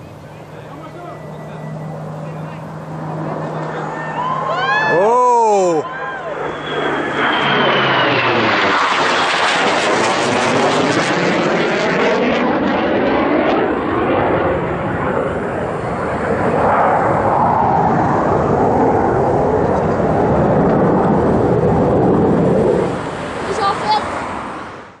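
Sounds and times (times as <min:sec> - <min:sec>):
jet passing low overhead: 0:00.0 - 0:25.0.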